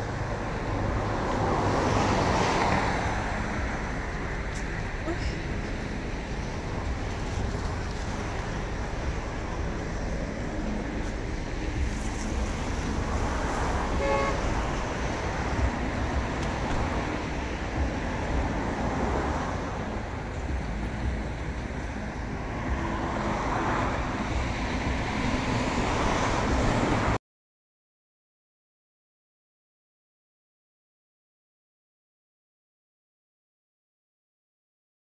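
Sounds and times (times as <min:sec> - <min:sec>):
low outdoor rumble: 0:03.0 - 0:27.2.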